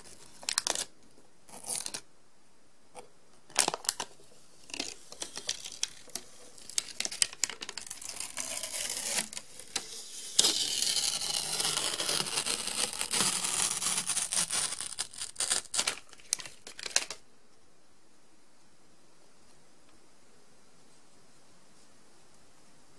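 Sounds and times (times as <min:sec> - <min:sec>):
packaging crinkling: 0:00.0 - 0:00.9, 0:03.5 - 0:17.2
steady packaging rustle: 0:03.0 - 0:17.2.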